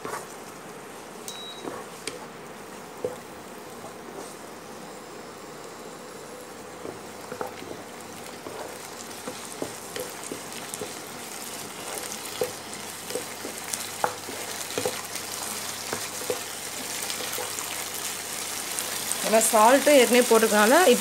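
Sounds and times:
food sizzling in hot oil: 0:01.7 - 0:21.0
wooden spatula scraping pan: 0:06.8 - 0:17.6.

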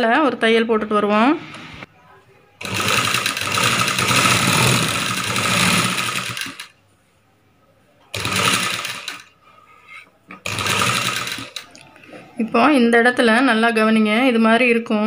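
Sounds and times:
sewing machine stitching: 0:02.6 - 0:06.7, 0:08.1 - 0:09.3, 0:10.4 - 0:11.7.

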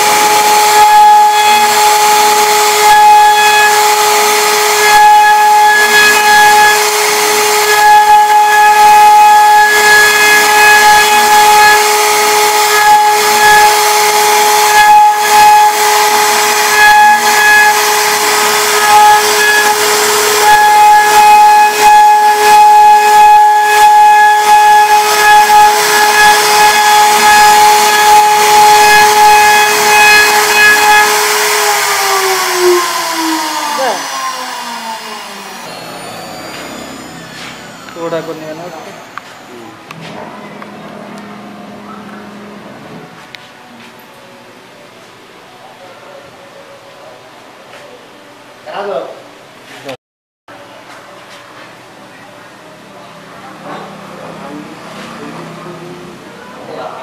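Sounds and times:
router spindle whining: 0:00.0 - 0:43.4
wood cutting hiss: 0:15.2 - 0:39.7.

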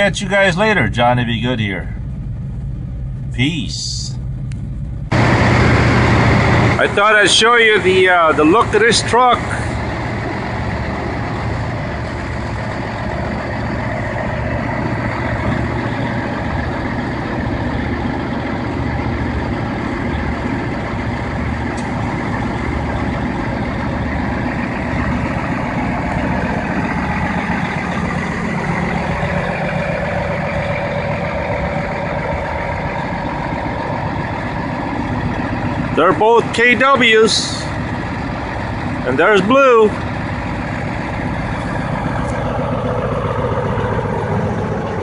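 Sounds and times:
diesel truck engine idling: 0:00.0 - 0:45.0.

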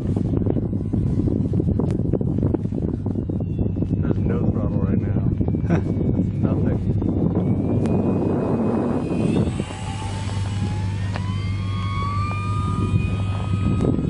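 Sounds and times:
wind on microphone: 0:00.0 - 0:14.0
model plane motor whining: 0:07.0 - 0:14.0.

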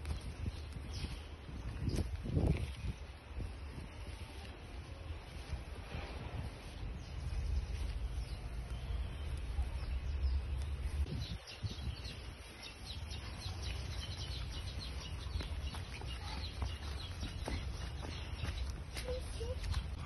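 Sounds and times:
wind rumble on microphone: 0:00.0 - 0:15.7
birds chirping: 0:00.0 - 0:20.0.

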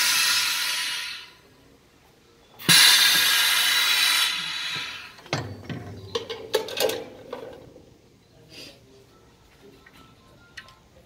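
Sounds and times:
compressed air hiss: 0:00.0 - 0:01.4, 0:02.6 - 0:05.2.

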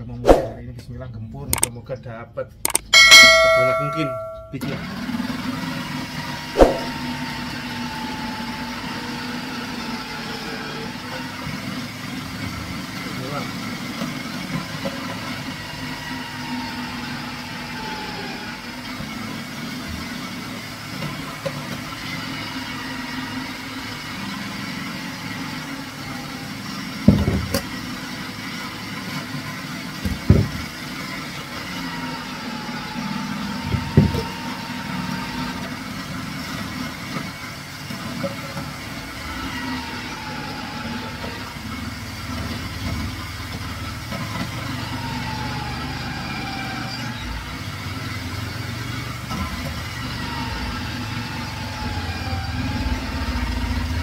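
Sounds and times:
electric grater motor whine: 0:04.6 - 0:54.0
sharp knocks: 0:06.6 - 0:06.9.

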